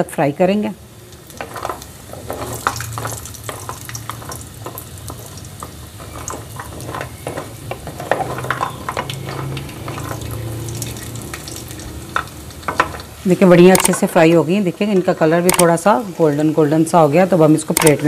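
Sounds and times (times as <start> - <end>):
dumplings sizzling in hot ghee: 0.0 - 18.0
wooden spatula scraping a pot: 1.4 - 10.6.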